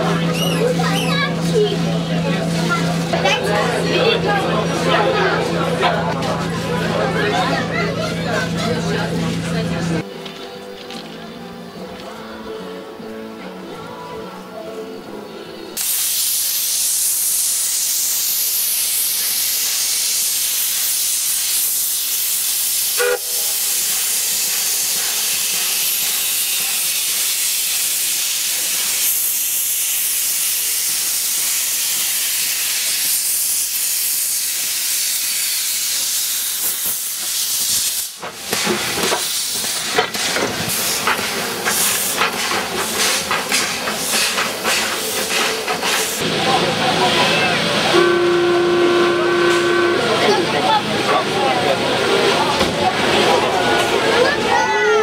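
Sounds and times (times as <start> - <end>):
steam hissing: 15.8 - 53.2
steam locomotive chuffs: 15.8 - 54.7
brief tone: 48.0 - 50.3.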